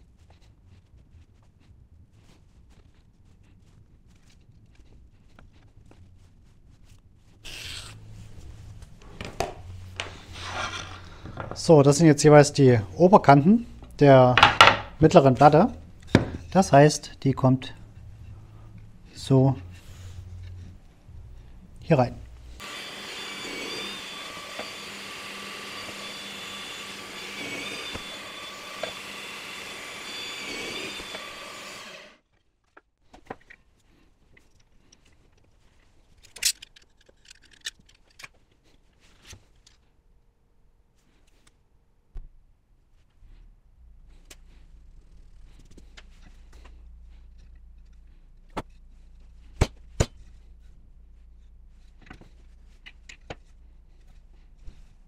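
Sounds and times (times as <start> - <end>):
wooden boards knocking together: 14.4 - 14.9
motor-driven machine whirring: 22.6 - 32.2.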